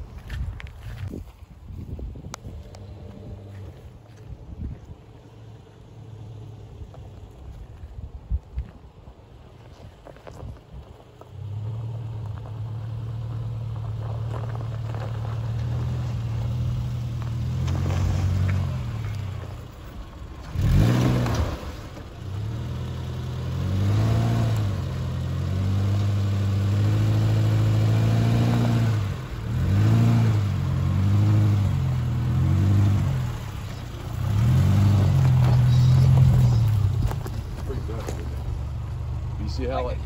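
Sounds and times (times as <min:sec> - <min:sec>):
car engine revving at low speed: 0:02.3 - 0:04.2, 0:11.2 - 0:40.0.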